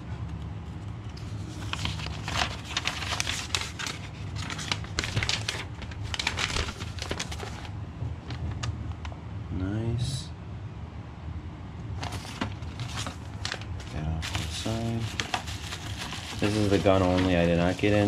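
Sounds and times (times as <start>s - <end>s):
steady low hum: 0.0s - 18.0s
paper and packaging rustling: 1.0s - 8.8s, 12.0s - 18.0s.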